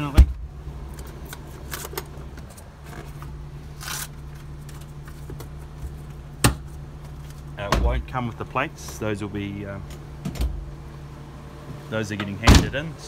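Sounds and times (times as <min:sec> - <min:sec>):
van engine idling: 0:00.0 - 0:13.0
phone rustling and scraping: 0:00.9 - 0:07.5.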